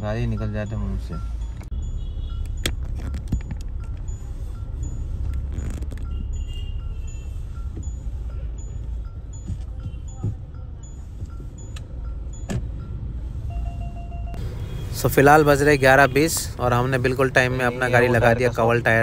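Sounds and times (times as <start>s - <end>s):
electronic ticking: 0.0s - 14.4s
engine and road rumble: 0.0s - 19.0s.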